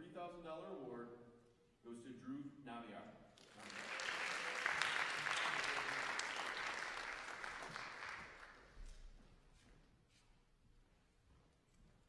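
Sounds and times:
audience applauding: 0:03.4 - 0:08.8.

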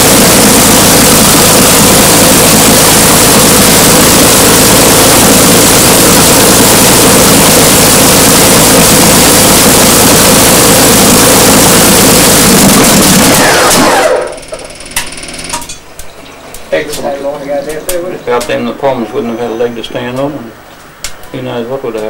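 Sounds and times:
aero engine running loud: 0:00.0 - 0:14.9.

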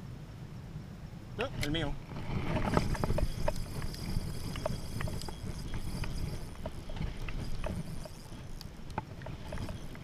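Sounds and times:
water: 0:00.0 - 0:10.0
wind: 0:00.0 - 0:10.0
fishing reel clicking: 0:01.6 - 0:10.0.

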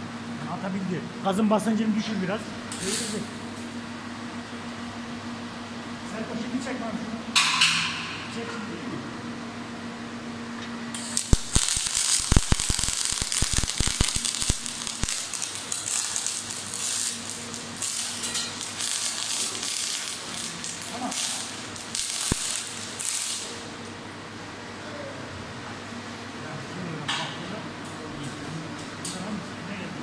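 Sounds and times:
welding spatter pops: 0:10.9 - 0:23.5
welding arc crackling: 0:10.9 - 0:24.0.

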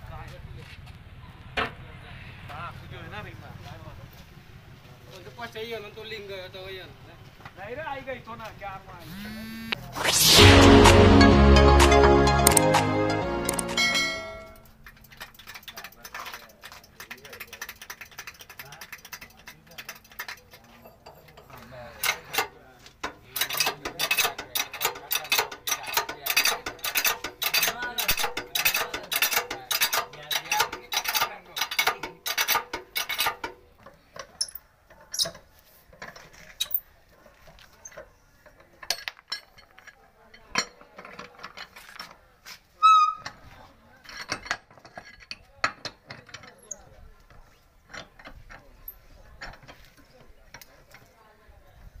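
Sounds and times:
wheel spanner clinking on nuts: 0:13.5 - 0:36.8, 0:44.0 - 0:46.8
hydraulic jack clicking: 0:23.1 - 0:33.6
short loud squeak: 0:42.8 - 0:43.4.

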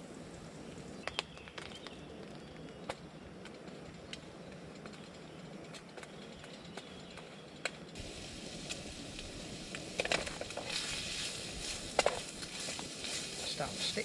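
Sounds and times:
bacon sizzling in a frying pan: 0:08.0 - 0:14.0
wooden spatula scraping a pan: 0:10.0 - 0:14.0.

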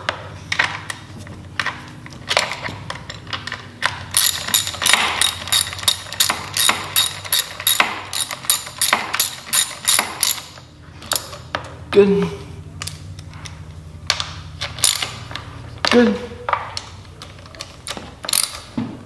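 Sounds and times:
ratchet wrench clicking: 0:04.1 - 0:11.4, 0:14.8 - 0:15.2, 0:18.2 - 0:18.7.

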